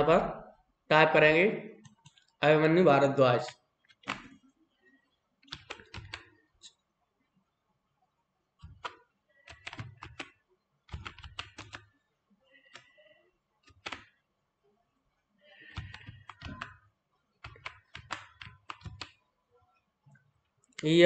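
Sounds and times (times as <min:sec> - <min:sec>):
keyboard typing: 0:01.8 - 0:02.3, 0:03.4 - 0:04.4, 0:05.4 - 0:06.7, 0:08.6 - 0:12.0, 0:12.6 - 0:14.2, 0:15.5 - 0:19.2.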